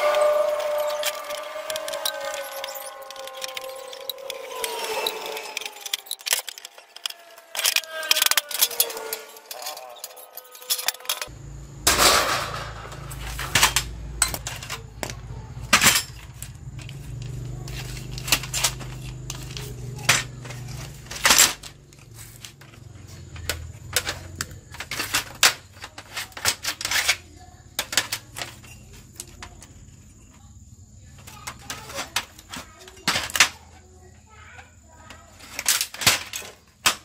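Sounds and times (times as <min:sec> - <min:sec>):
sheet metal cover clattering: 0:11.9 - 0:14.8.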